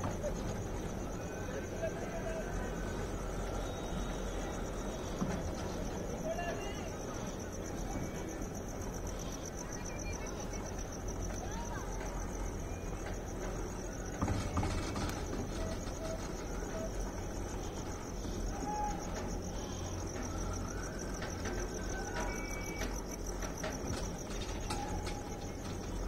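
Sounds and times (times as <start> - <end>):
crickets trilling: 0.0 - 26.0.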